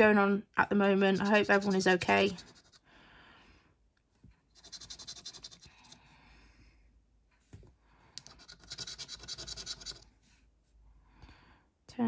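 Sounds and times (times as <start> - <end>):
coin scratching scratchcard: 1.1 - 2.8, 4.5 - 6.0, 8.2 - 10.0.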